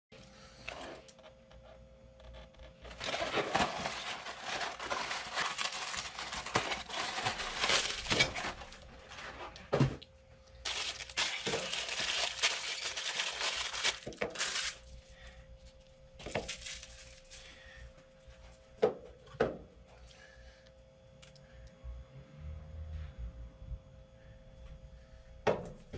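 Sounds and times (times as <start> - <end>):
wrapper crinkling and crushing: 2.8 - 9.3, 10.6 - 14.9, 16.2 - 17.5.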